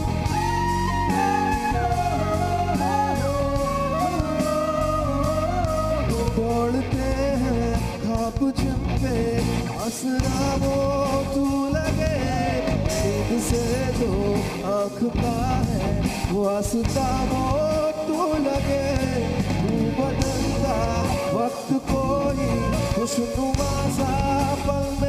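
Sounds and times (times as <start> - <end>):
wavering melody line: 0.0 - 7.0
rock band playing a slow ballad: 0.0 - 25.0.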